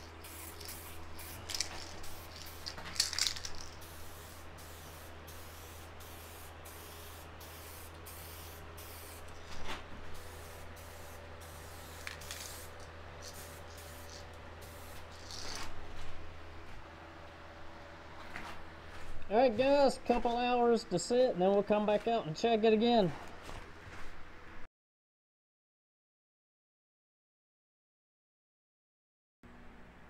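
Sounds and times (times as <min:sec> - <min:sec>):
aerosol spray can hissing: 0:00.0 - 0:09.4, 0:10.1 - 0:15.7.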